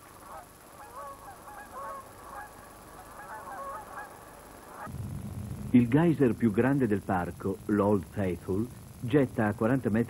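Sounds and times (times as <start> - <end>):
geese honking: 0.2 - 4.9.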